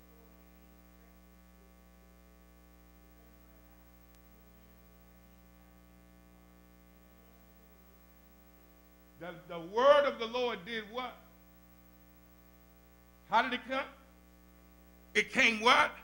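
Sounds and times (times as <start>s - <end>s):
electrical mains hum: 0.0s - 16.0s
faint click: 4.1s - 4.3s.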